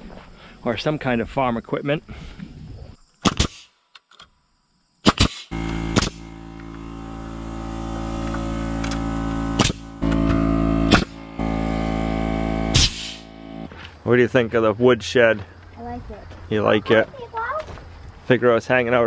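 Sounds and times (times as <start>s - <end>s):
nail gun firing: 3.2s - 3.7s, 5.0s - 6.8s, 8.2s - 11.2s, 12.7s - 13.2s
air compressor running: 5.5s - 13.7s.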